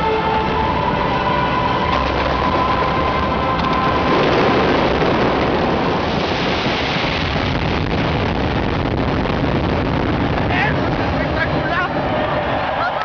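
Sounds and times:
stadium crowd cheering: 0:11.2 - 0:13.0.

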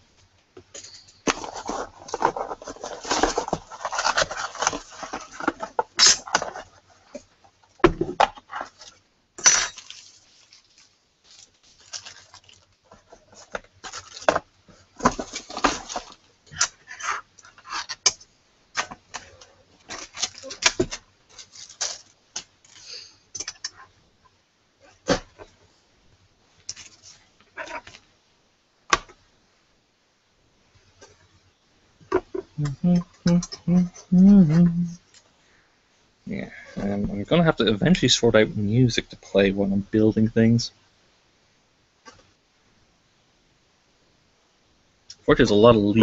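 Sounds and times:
hands handling computer parts: 0:00.6 - 0:24.0, 0:26.6 - 0:28.1
packaging rustling: 0:00.8 - 0:07.3, 0:08.2 - 0:18.0, 0:18.8 - 0:23.0.

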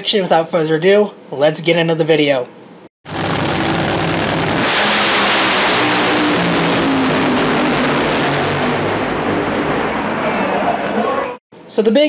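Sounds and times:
drag-racing engine running: 0:03.1 - 0:10.2.

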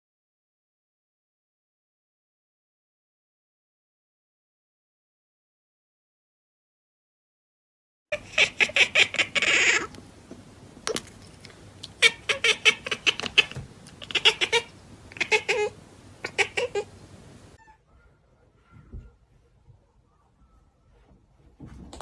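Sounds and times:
cat chattering: 0:08.1 - 0:09.9, 0:11.9 - 0:16.9.

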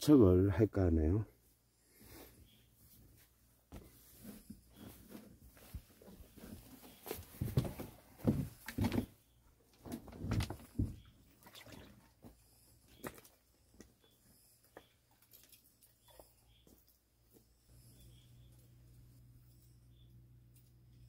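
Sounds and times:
footsteps crunching on loose rocks: 0:04.8 - 0:09.2.

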